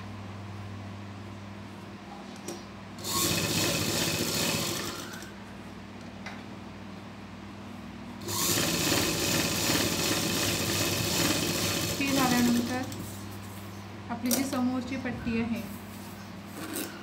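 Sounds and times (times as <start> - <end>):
sewing machine stitching: 3.0 - 5.3, 8.2 - 13.0.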